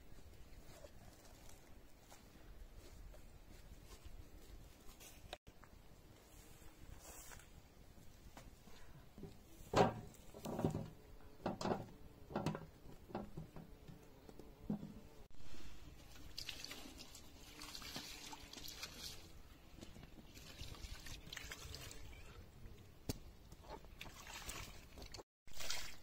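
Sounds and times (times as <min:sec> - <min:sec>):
water splashing over vegetables: 0:15.5 - 0:22.2, 0:23.9 - 0:26.0.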